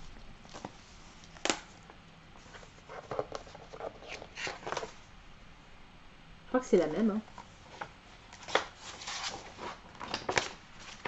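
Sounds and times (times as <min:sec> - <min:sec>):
paper rustles and clicks: 0:02.4 - 0:05.0, 0:07.7 - 0:11.0.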